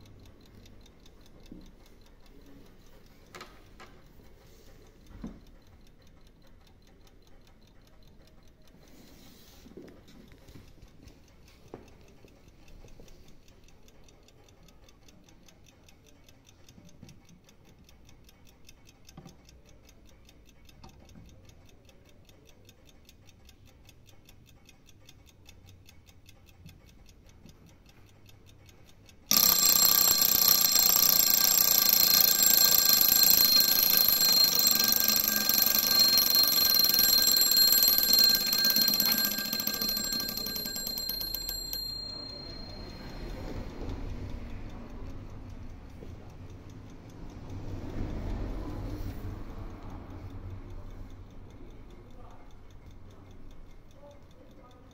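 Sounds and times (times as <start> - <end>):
clock ticking: 0.0 - 54.9
alarm bell ringing: 29.3 - 43.8.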